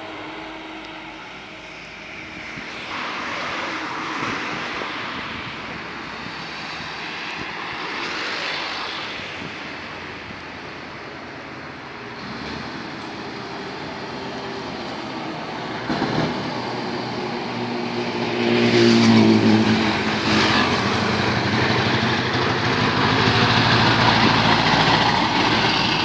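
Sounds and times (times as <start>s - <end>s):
diesel truck engine passing: 12.0s - 26.0s.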